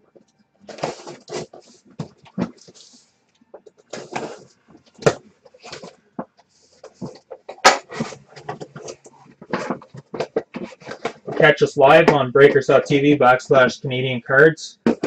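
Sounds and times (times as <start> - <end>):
cardboard flaps scratching and clicking: 0.7 - 2.9, 3.6 - 6.0, 6.8 - 11.4.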